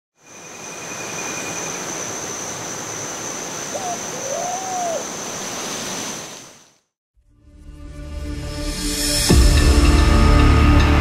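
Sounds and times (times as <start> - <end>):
rising and falling call: 3.6 - 5.4.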